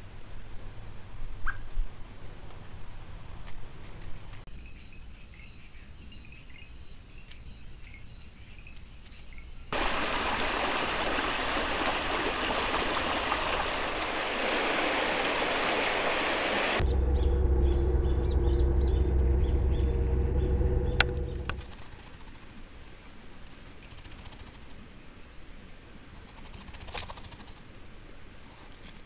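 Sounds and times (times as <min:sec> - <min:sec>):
stream rushing over rocks: 0:09.8 - 0:16.8.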